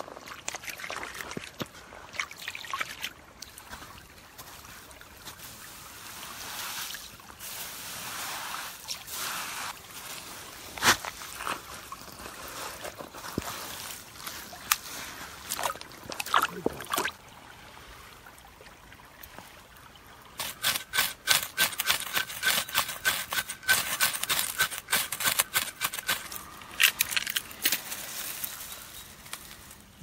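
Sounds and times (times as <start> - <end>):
hands digging through soil: 5.3 - 16.9, 20.4 - 30.0.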